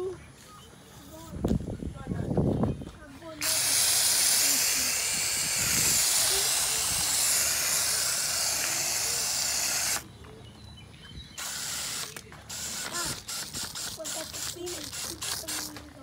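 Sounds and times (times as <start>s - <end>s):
foam gun spraying hiss: 3.4s - 10.0s, 11.4s - 15.8s.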